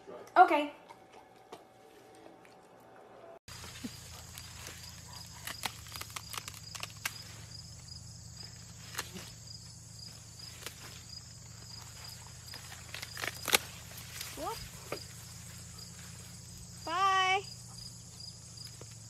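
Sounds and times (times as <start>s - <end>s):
field insects chirping: 3.5s - 19.0s
sharp snaps and steps: 3.6s - 9.8s, 10.4s - 15.2s.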